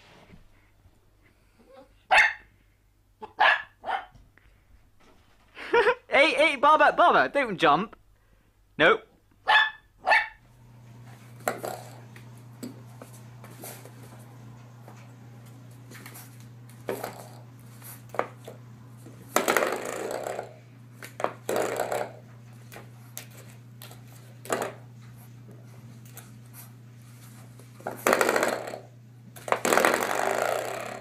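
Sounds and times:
puppy yipping: 1.7 - 2.4, 3.2 - 4.1, 9.4 - 10.4
small dog yelping: 1.7 - 2.4, 3.2 - 4.1, 9.4 - 10.4
steady low hum: 10.5 - 31.0.

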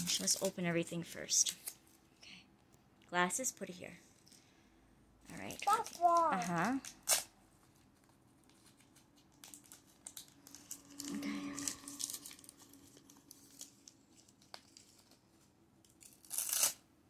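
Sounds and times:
plastic wrappers crinkling and tearing: 0.0 - 0.7, 5.3 - 16.8.

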